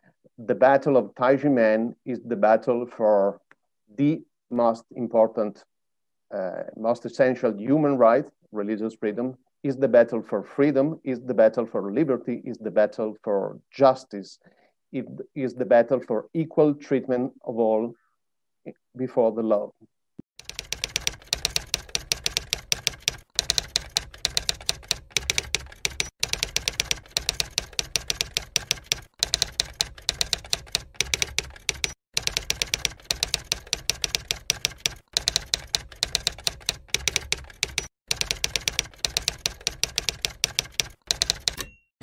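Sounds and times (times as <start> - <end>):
typewriter key clacks: 20.5 - 41.8.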